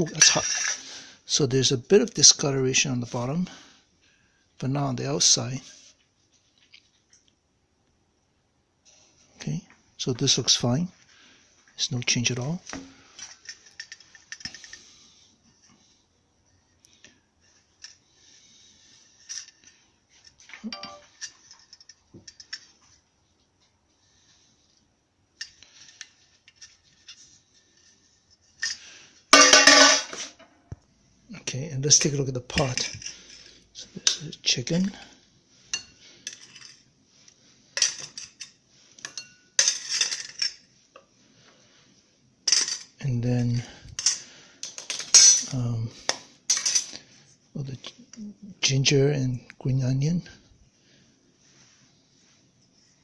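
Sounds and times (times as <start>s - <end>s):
tongs and spoon clinking on metal pot: 29.4s - 30.2s.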